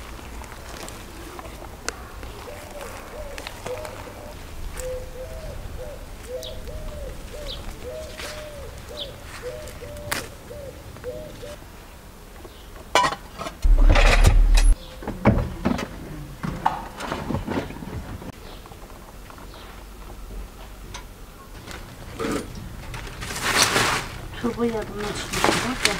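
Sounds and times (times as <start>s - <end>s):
knocks and clatter: 13.6s - 14.8s
loud rumbling burst: 13.6s - 14.8s.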